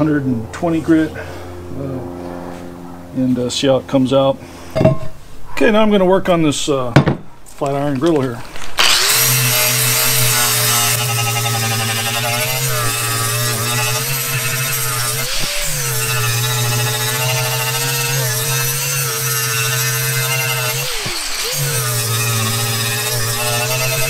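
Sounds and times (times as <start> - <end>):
angle grinder sanding cast iron: 8.8 - 24.0.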